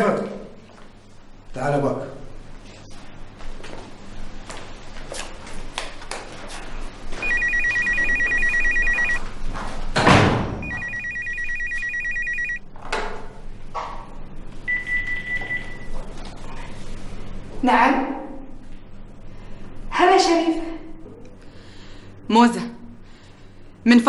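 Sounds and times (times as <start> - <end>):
telephone ringing: 7.2 - 9.2, 10.6 - 12.6
loud thump: 10.0 - 10.7.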